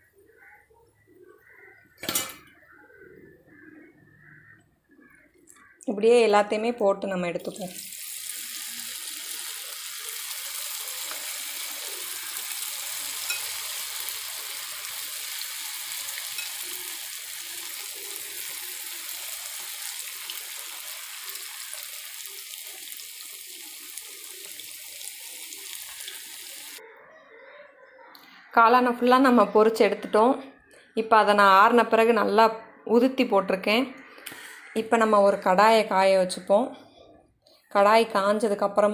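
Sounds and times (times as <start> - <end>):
batter deep-frying in oil: 7.5 - 26.8.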